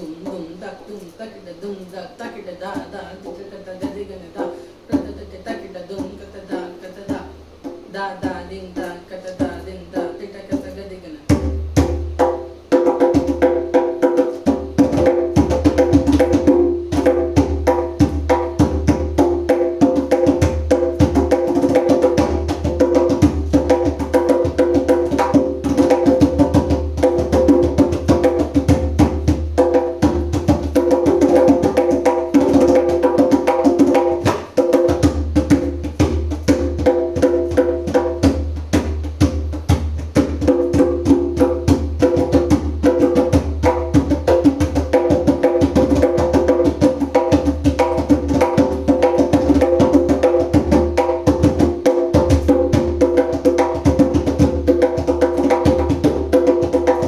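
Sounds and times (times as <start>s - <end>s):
djembe played with hands: 3.8s - 8.5s, 9.3s - 57.0s.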